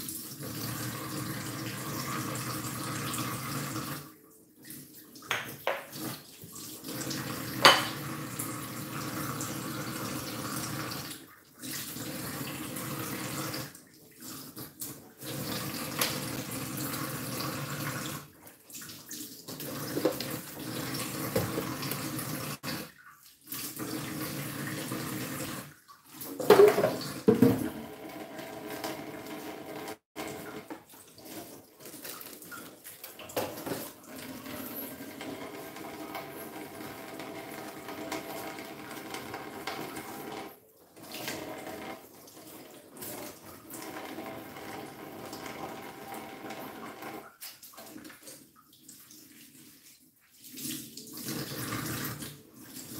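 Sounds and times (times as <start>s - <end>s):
tap water running into sink: 0.0s - 4.1s, 5.2s - 49.1s, 50.5s - 52.9s
dishes clattering: 7.6s - 8.0s, 26.4s - 27.8s.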